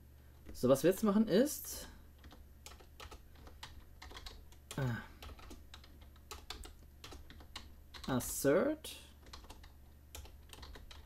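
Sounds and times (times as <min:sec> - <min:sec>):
typing on computer keyboard: 0:02.2 - 0:08.4, 0:09.2 - 0:11.0.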